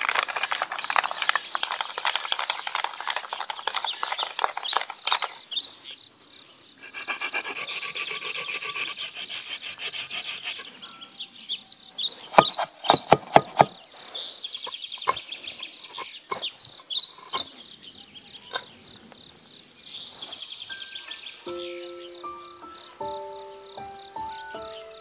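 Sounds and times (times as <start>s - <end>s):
birds chirping: 0.0s - 25.0s
scratchy rasping tool strokes: 8.0s - 10.8s
sharp knocks: 12.4s - 13.8s.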